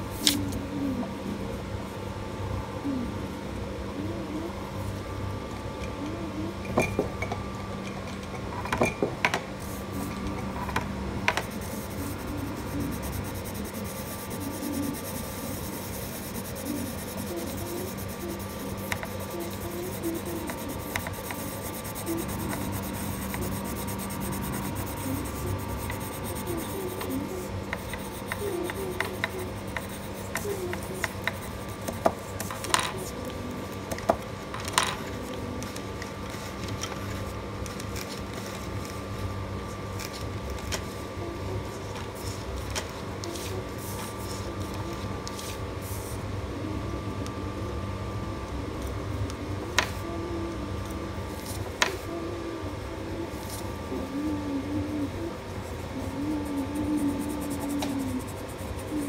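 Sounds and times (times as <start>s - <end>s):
pencil tapping: 11.3s - 32.2s, 56.5s - 59.0s
pencil scratching on paper: 11.4s - 33.1s, 55.9s - 59.0s.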